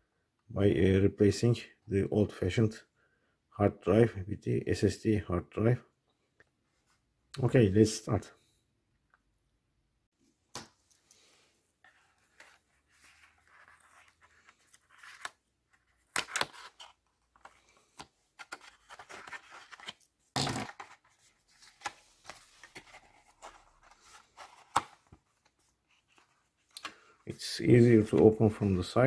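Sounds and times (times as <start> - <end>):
cardboard rustling and scraping: 11.8 - 26.7.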